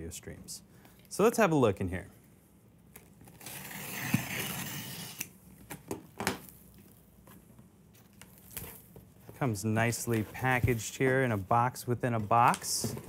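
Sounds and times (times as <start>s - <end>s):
box cutter slicing packing tape: 3.4s - 5.3s.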